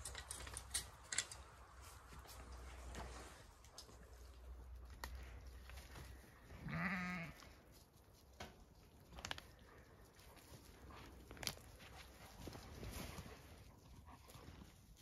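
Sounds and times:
sheep bleating: 6.6s - 7.5s.

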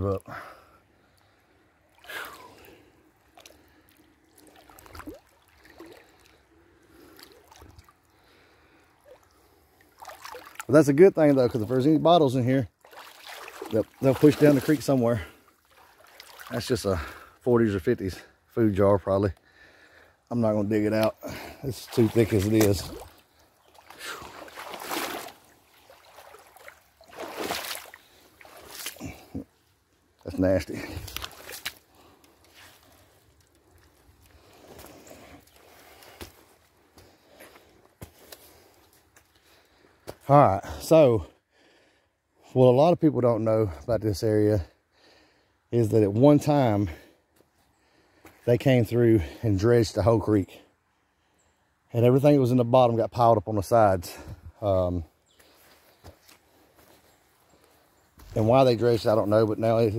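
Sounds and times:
person wading through creek water: 0.3s - 18.5s, 19.4s - 41.0s
small water splashes: 1.8s - 11.9s, 12.6s - 17.3s, 21.0s - 29.5s, 30.2s - 36.4s.

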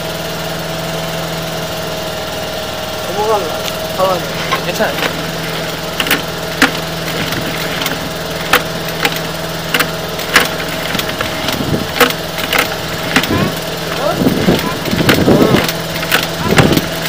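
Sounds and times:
steady low hum: 1.4s - 17.0s
sharp cable clacks: 3.6s - 17.0s.

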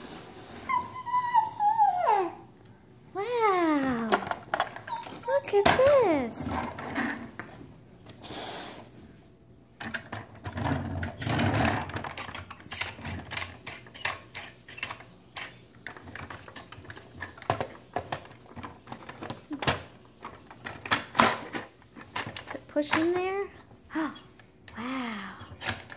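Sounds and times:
plastic toy clicks and knocks: 11.2s - 23.3s, 25.5s - 25.9s.

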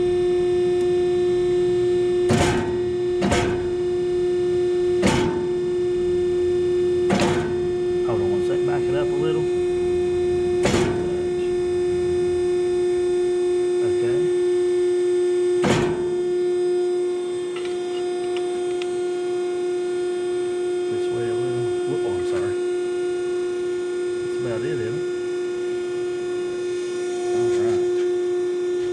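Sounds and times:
motor hum: 0.0s - 28.9s
machine punching steel: 2.2s - 4.0s, 4.9s - 5.8s, 7.0s - 8.0s, 9.1s - 12.9s, 15.6s - 16.6s.

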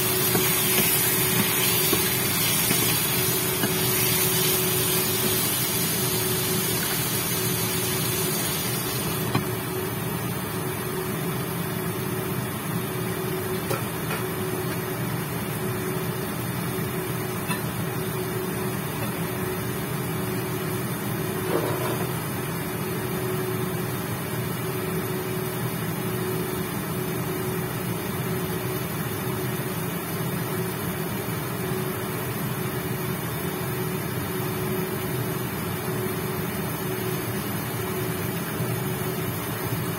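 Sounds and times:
chicken sizzling in a pan: 0.0s - 9.3s
cooktop fan hum: 0.0s - 39.9s.

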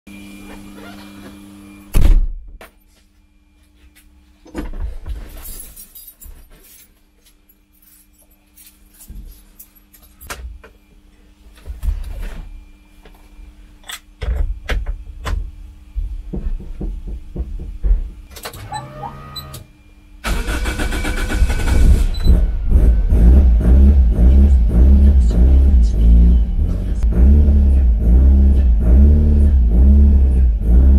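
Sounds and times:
thump: 2.0s - 2.4s
car engine cranking and running: 20.2s - 30.9s.

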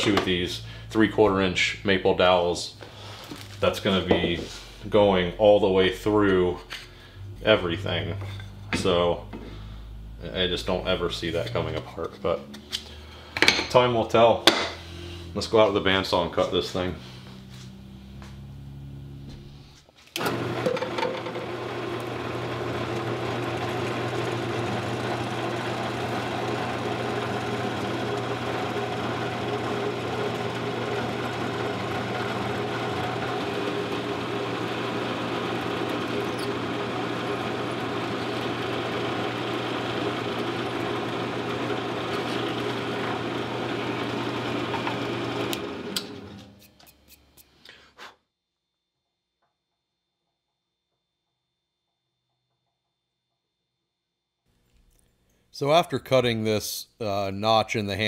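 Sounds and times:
drill press motor running: 20.2s - 46.6s.

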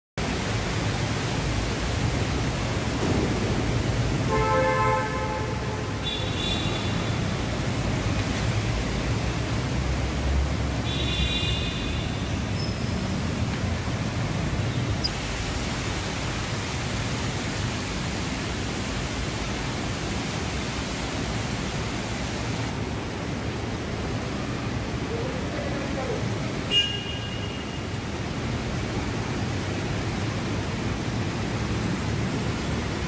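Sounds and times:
traffic echoing in underpass: 0.2s - 33.0s
vehicle horn: 4.3s - 7.3s, 10.8s - 12.3s, 26.7s - 27.8s.

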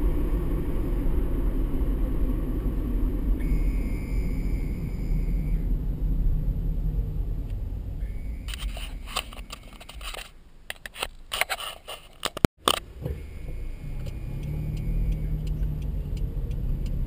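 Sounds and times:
car cabin road rumble: 0.0s - 17.0s
clicks and scrapes: 8.5s - 12.8s.

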